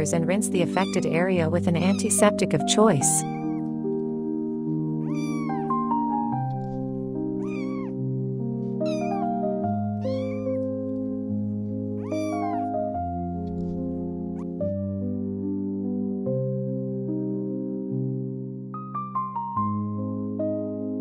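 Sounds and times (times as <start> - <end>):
slow background music: 0.0 - 21.0
kitten mewing: 0.6 - 1.2, 3.2 - 3.6, 5.0 - 5.7, 7.4 - 8.0, 8.8 - 9.3, 9.9 - 10.7, 12.0 - 12.8.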